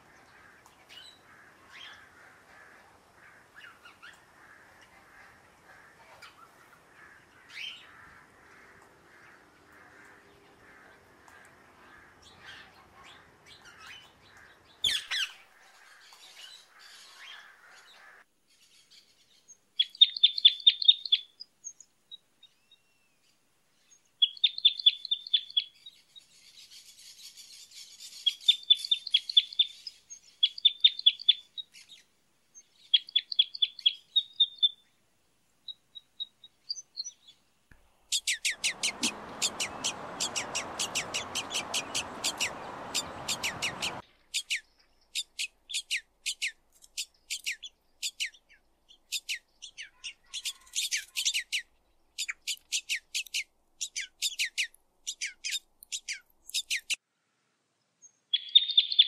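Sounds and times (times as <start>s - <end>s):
birds chirping: 0.0s - 18.2s, 35.9s - 57.0s
steady rushing noise: 38.6s - 44.0s.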